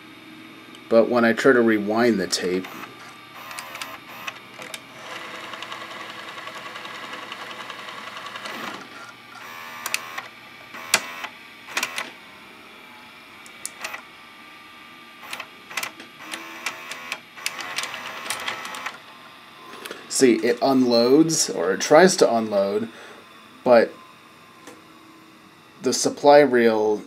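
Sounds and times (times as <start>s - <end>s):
tape motor whirring: 2.0s - 12.2s, 13.1s - 14.2s, 15.2s - 25.7s
tape deck clicking and clunking: 2.6s - 4.9s, 5.5s - 12.1s, 15.2s - 19.0s.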